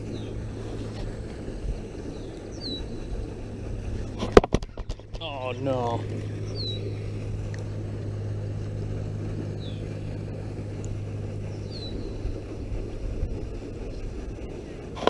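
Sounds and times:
fountain motor humming: 0.0s - 15.0s
spraying water: 0.0s - 15.0s
bird chirping: 2.0s - 3.0s, 6.4s - 7.0s, 9.6s - 9.9s, 11.4s - 12.3s.

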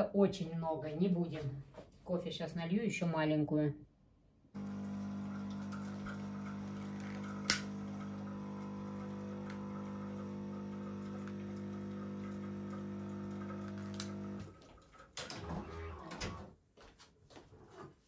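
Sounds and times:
low electrical hum: 4.6s - 14.6s.

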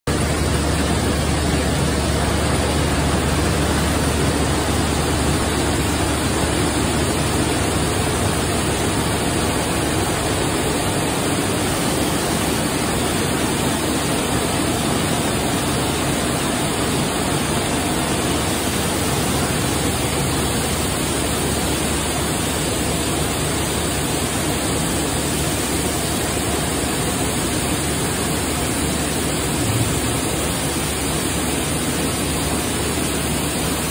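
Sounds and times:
low hum: 0.1s - 14.1s, 29.3s - 31.7s
spinning machines running: 0.1s - 33.9s.

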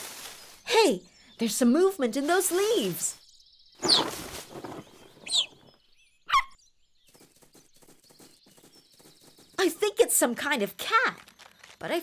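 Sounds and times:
rustling leaves: 0.0s - 3.2s, 3.8s - 5.7s
short bird-like whistles: 3.8s - 5.6s, 6.3s - 6.6s
flapping wings: 3.8s - 5.7s, 7.1s - 9.8s.

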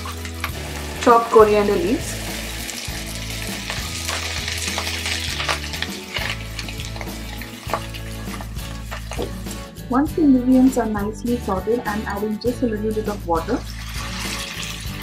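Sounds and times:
vegetables sizzling in hot oil: 0.0s - 9.5s, 13.4s - 15.0s.

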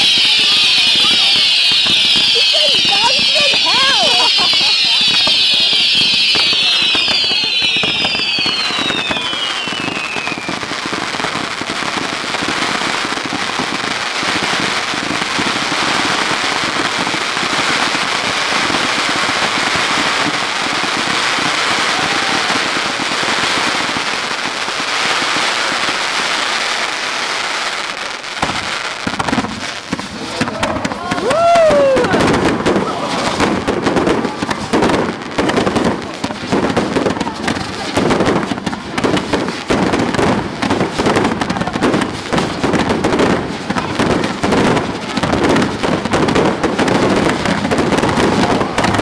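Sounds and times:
falling whistles: 0.0s - 10.5s
firework fountains crackling: 0.0s - 49.0s.

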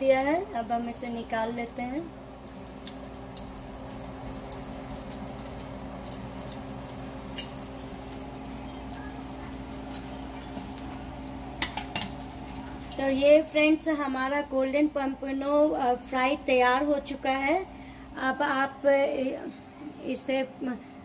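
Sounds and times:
oil sizzling and crackling: 0.0s - 13.8s
steady low hum: 0.0s - 21.0s.

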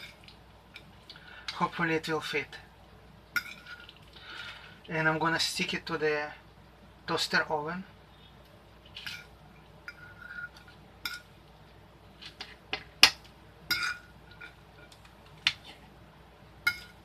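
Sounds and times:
metal fork clinking on plate: 16.7s - 17.0s.

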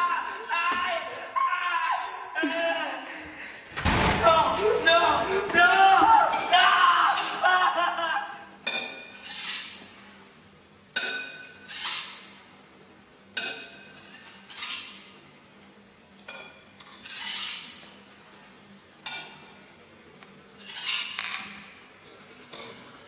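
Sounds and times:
knife stroked on sharpening steel: 9.2s - 9.8s, 17.0s - 17.9s, 20.6s - 21.2s.

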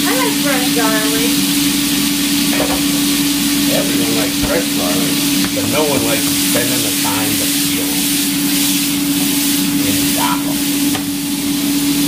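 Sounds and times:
steady low hum: 0.0s - 12.0s
vegetables sizzling in a frying pan: 0.0s - 12.0s
food tossed in pan: 5.3s - 12.0s.

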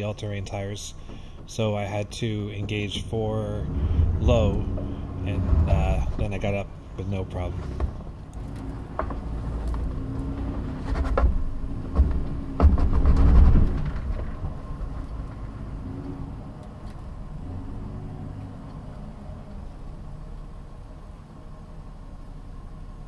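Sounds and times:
sharp knocks of truck bouncing: 0.0s - 15.7s
truck engine crawling: 0.0s - 23.0s.

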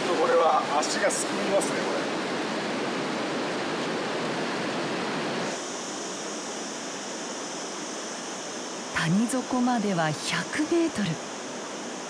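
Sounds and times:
river water rushing: 0.0s - 9.2s.

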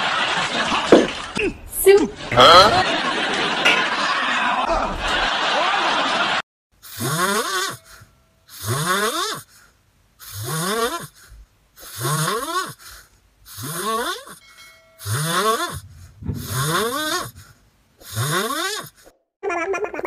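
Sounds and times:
puppy snoring: 6.8s - 9.6s, 10.2s - 14.4s, 15.0s - 19.1s.

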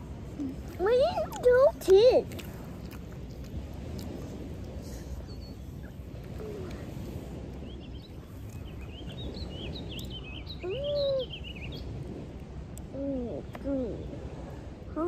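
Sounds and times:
low background hiss: 0.0s - 15.0s
small birds chirping: 0.4s - 12.1s.

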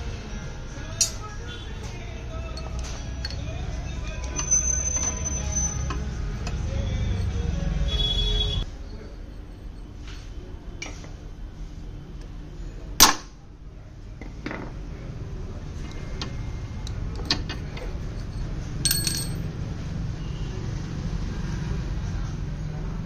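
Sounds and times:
ringing clink of metal: 18.2s - 19.5s.

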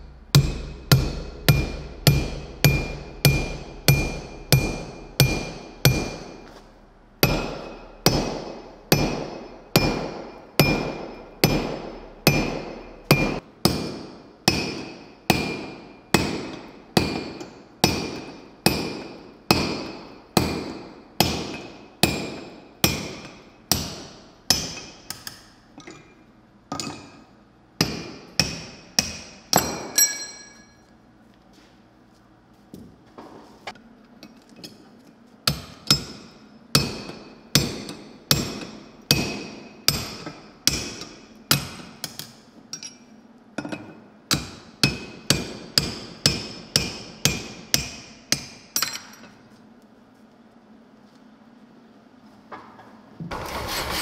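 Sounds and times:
sledgehammer blows on metal: 0.0s - 6.5s, 7.2s - 25.0s.

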